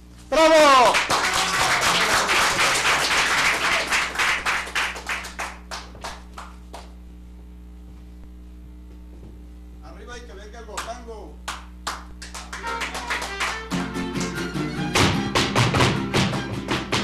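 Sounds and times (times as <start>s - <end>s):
low steady hum: 0.0s - 15.0s
audience applauding: 0.5s - 7.0s, 11.5s - 17.0s.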